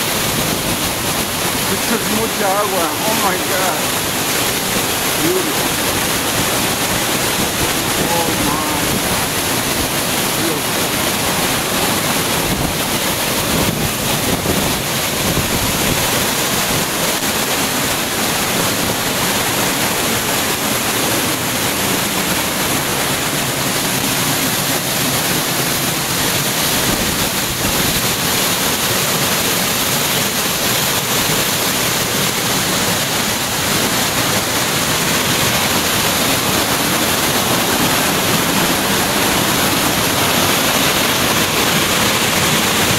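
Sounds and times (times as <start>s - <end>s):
waterfall crashing into pool: 0.0s - 42.9s.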